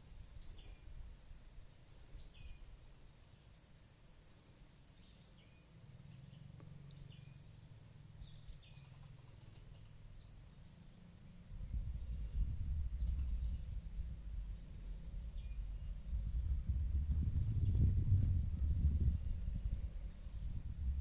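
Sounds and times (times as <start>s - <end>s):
small birds chirping: 0.0s - 21.0s
low rumble on microphone: 5.8s - 21.0s.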